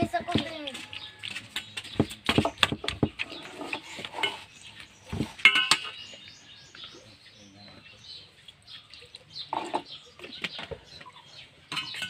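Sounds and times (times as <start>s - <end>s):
metal spatula scraping steel bowl: 3.2s - 6.0s, 9.4s - 10.0s, 11.7s - 12.0s.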